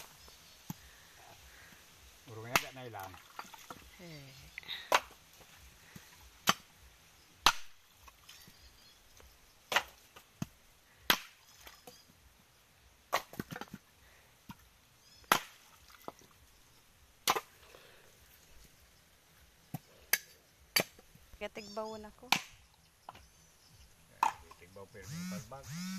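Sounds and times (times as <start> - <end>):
machete chopping coconuts: 2.4 - 3.9, 4.7 - 8.6, 9.6 - 11.5, 13.1 - 14.6, 15.2 - 15.7, 17.2 - 17.6, 19.7 - 21.1, 22.3 - 23.2, 24.2 - 24.6.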